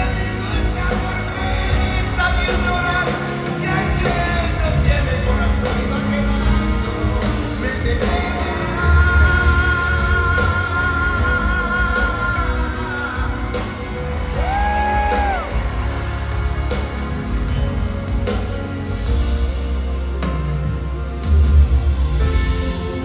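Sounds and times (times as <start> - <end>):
man singing lead vocals: 0.0 - 15.9
live band playing pop music: 0.0 - 23.0.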